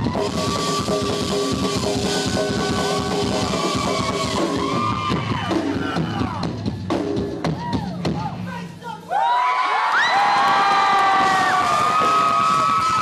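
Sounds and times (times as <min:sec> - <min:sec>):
live rock band playing: 0:00.0 - 0:08.3
drum and cymbal hits: 0:00.0 - 0:08.8, 0:10.6 - 0:13.0.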